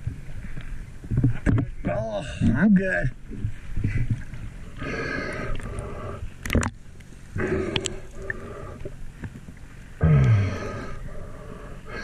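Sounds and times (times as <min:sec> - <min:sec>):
scuba regulator breathing: 0:04.8 - 0:06.3, 0:07.4 - 0:08.9, 0:10.0 - 0:12.0.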